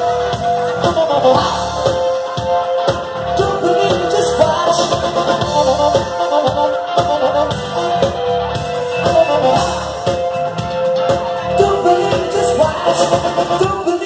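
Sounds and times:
bass guitar: 0:00.0 - 0:14.0
drum kit beat: 0:00.0 - 0:14.0.

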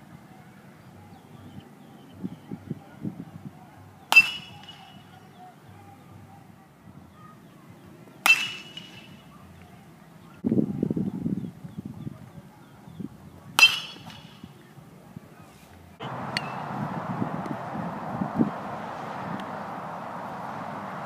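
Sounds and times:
metal bat hitting ball: 0:04.0 - 0:05.3, 0:08.2 - 0:09.3, 0:13.6 - 0:14.6, 0:16.0 - 0:16.8
low muffled rumble: 0:15.8 - 0:21.0.

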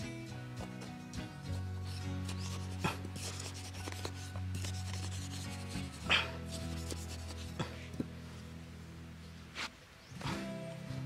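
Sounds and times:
low background music: 0:00.0 - 0:11.0
digging tool scraping sandy soil: 0:00.6 - 0:07.8, 0:09.5 - 0:09.8.

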